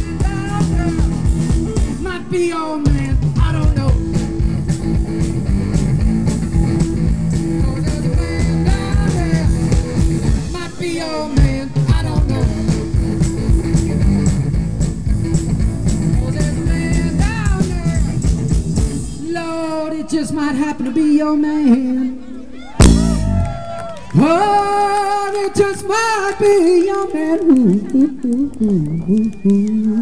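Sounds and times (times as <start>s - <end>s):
drum beat with cymbals: 0.0s - 2.1s, 2.9s - 19.3s, 22.8s - 23.4s
electric guitar: 0.0s - 19.2s, 22.6s - 30.0s
bass guitar: 0.0s - 19.5s, 22.8s - 26.0s.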